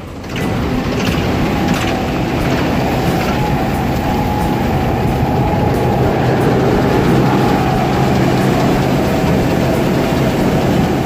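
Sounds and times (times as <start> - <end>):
steady high whine: 0.0 - 11.0
tractor engines running: 0.0 - 11.0.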